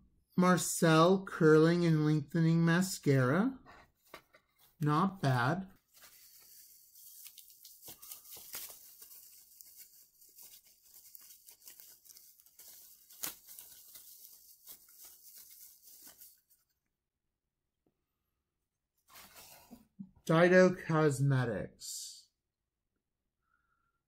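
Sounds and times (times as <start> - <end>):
bubble wrap crinkling: 5.8 - 16.8.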